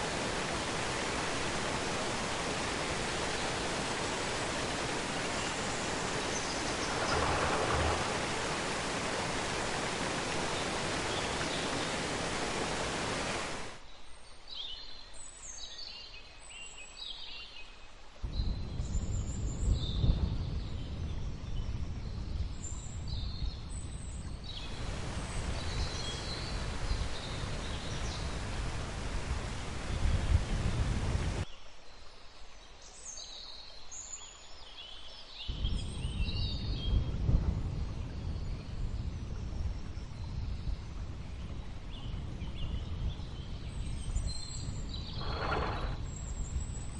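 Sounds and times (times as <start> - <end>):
birds chirping: 0.0 - 13.8, 42.0 - 46.9
waterfall rushing: 0.0 - 13.8, 24.7 - 31.4.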